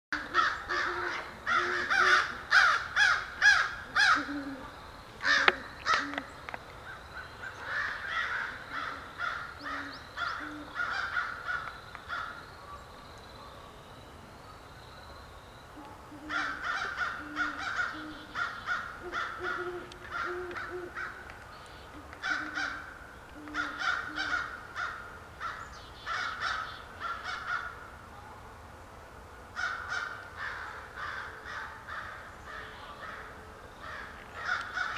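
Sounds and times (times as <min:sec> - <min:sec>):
crows cawing: 0:00.2 - 0:04.6, 0:05.2 - 0:06.3, 0:06.9 - 0:12.4, 0:16.1 - 0:21.3, 0:21.9 - 0:27.9, 0:29.6 - 0:34.9
low owl hoots: 0:00.2 - 0:06.4, 0:07.4 - 0:12.8, 0:15.7 - 0:28.4.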